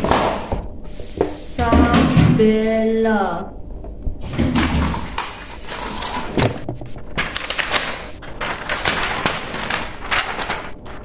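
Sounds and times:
wrapping paper rustling: 4.5 - 11.0.

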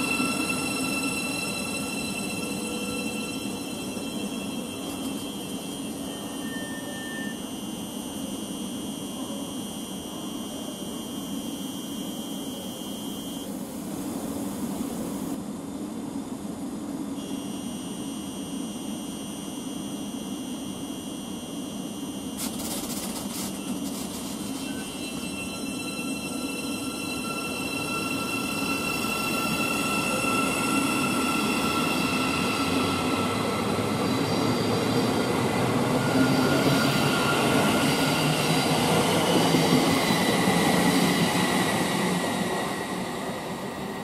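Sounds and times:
electric train whine and hum: 0.0 - 44.0.

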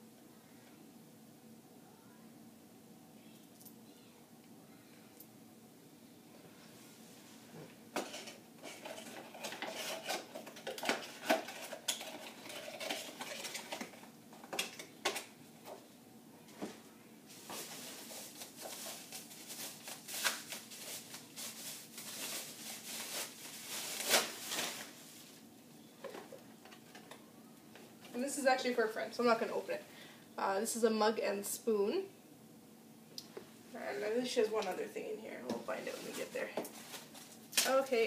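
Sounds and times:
packaging rustling and crinkling: 8.0 - 15.2, 17.3 - 25.4, 35.8 - 37.8.

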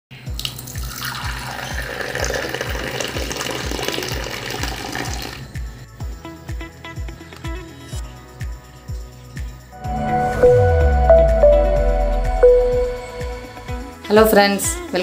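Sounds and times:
tea pouring into cup: 0.4 - 5.4
music with steady beat: 9.7 - 14.0.

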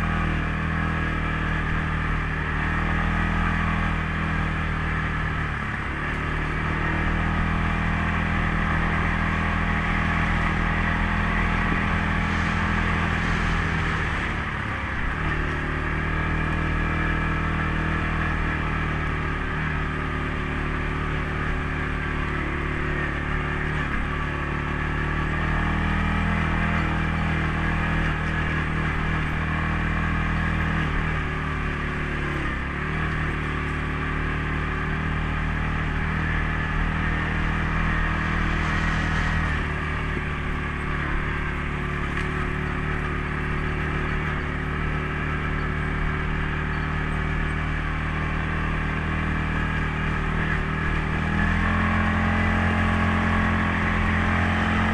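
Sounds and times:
atv engine running: 0.0 - 54.9.

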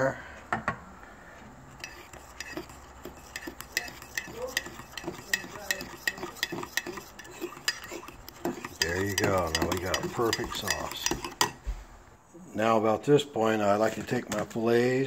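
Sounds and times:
metal utensil stirring thick sauce: 1.7 - 11.6
utensil clicking against bowl: 1.8 - 11.6.

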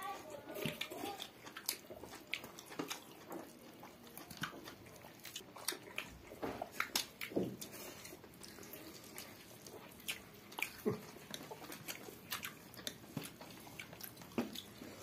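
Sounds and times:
wet chewing and lip smacks: 0.1 - 15.0.

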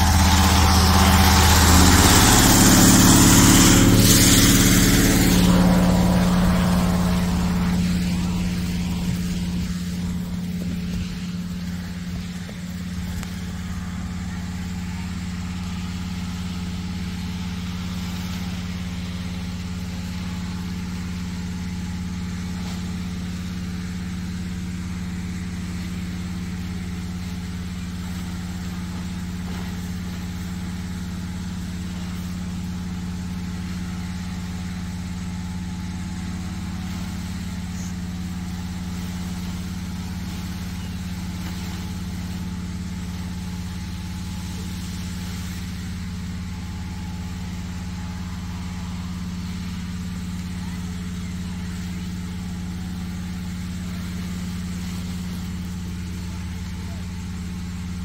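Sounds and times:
inflator fan engine running: 0.0 - 58.0.

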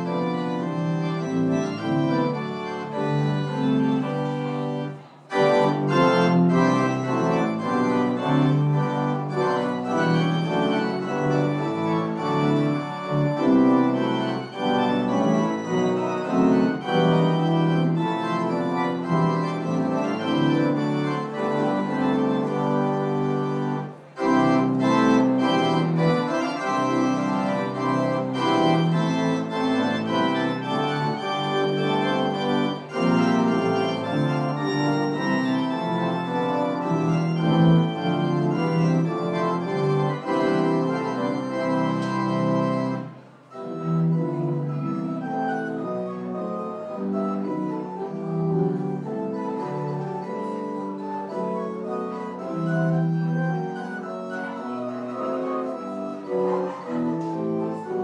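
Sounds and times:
church organ playing chords: 0.0 - 58.0.

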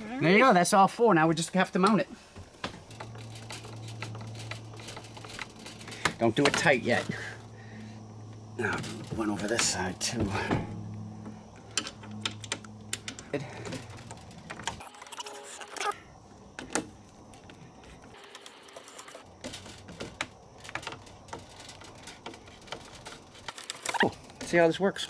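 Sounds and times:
faint low hum: 1.6 - 18.2.

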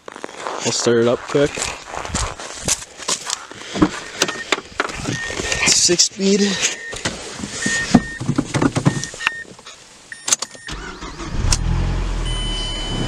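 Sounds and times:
car engine starting and idling: 8.9 - 13.0
short chime beeps: 12.2 - 13.0.

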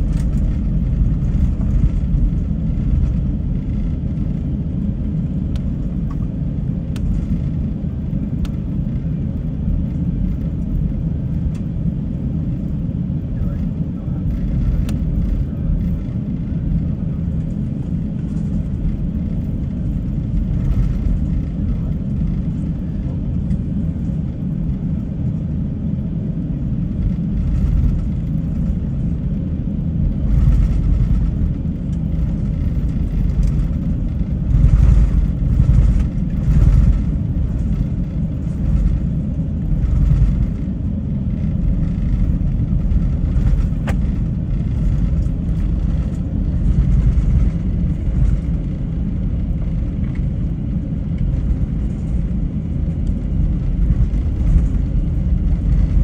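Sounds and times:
airliner cabin rumble: 0.0 - 56.0.

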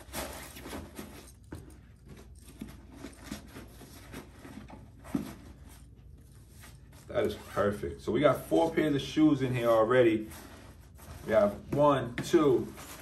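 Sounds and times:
fabric rustling: 8.3 - 13.0.

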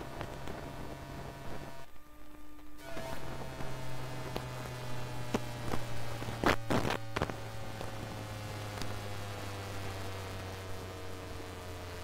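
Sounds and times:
loud crackles: 0.0 - 12.0
steady electrical hum: 0.0 - 12.0
high tone sliding downward: 2.8 - 12.0.

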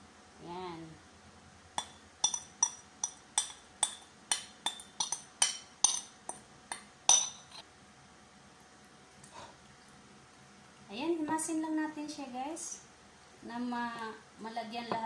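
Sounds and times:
glass bowls clinking: 1.8 - 7.6.

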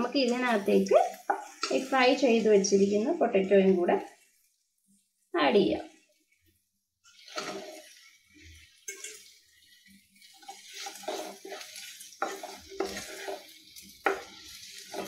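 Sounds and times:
spatula scraping pan: 0.0 - 2.9, 7.0 - 15.0
food sizzling: 0.0 - 15.0.

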